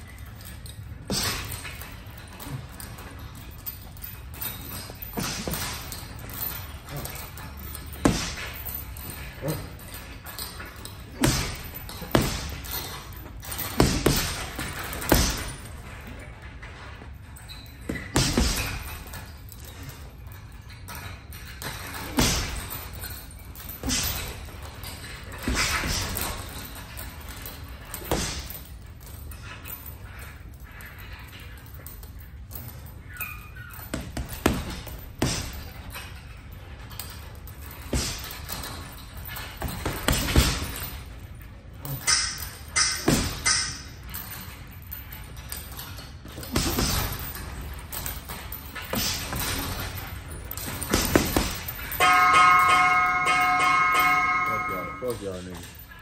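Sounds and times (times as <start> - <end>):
punches hitting heavy bag: 5.1 - 8.7, 11.1 - 15.8, 17.9 - 19.1, 21.8 - 23.0, 23.8 - 24.6, 25.3 - 26.7, 27.9 - 28.6, 33.9 - 35.8, 37.7 - 38.9, 39.6 - 40.9, 41.8 - 43.9, 46.3 - 47.7, 48.9 - 55.0
punches on heavy bag: 8.0 - 8.6, 11.2 - 12.7, 13.6 - 15.7, 18.0 - 18.9, 22.0 - 22.7, 33.9 - 35.6, 37.8 - 38.4, 46.4 - 47.3, 50.8 - 54.4.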